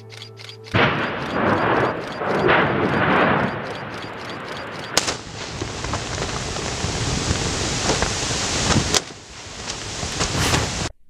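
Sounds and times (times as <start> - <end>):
faint ticks: 0.0 - 5.2
sharp crack: 0.7 - 10.9
volcanic eruption rushing: 0.9 - 10.9.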